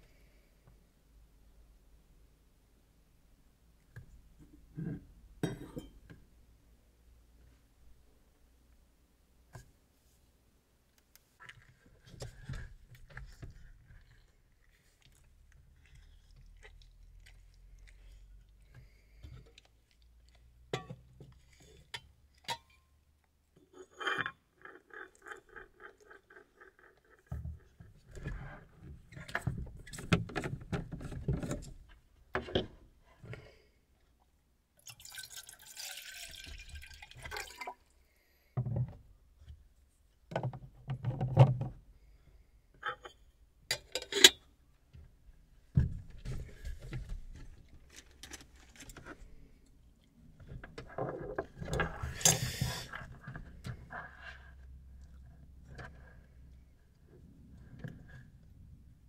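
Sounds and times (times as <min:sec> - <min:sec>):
water pouring into metal kettle: 0:34.8 - 0:37.8.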